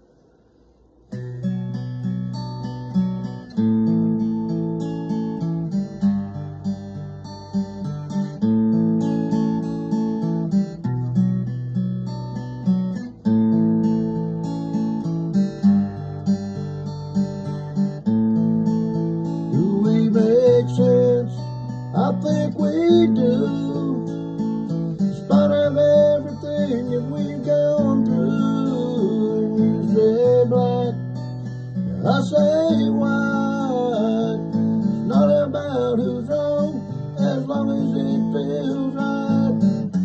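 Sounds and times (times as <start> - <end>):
acoustic guitar strumming chords: 0.1 - 40.0
man singing: 19.5 - 31.1, 31.8 - 40.0.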